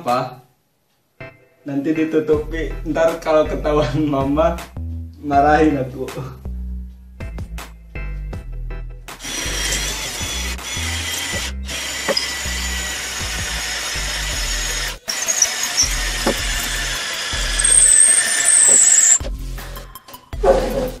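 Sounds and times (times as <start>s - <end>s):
drill drilling into masonry: 9.2s - 19.2s.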